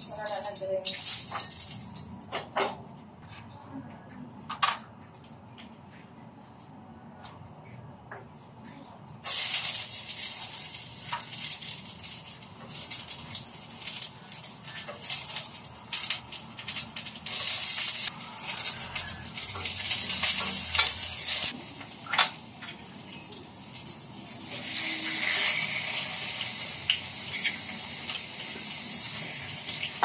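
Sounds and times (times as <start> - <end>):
food sizzling in a pan: 0.0 - 2.1, 9.2 - 30.0.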